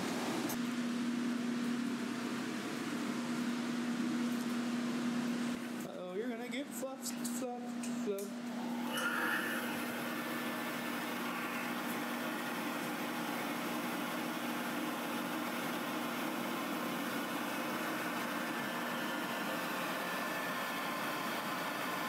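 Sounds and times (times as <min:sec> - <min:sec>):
grooming dryer blowing air: 0:07.8 - 0:22.0.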